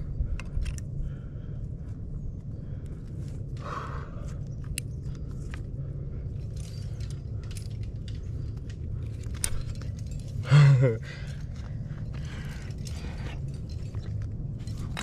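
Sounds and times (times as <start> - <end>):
metal climbing gear clinking: 0.0 - 1.7, 2.4 - 15.0.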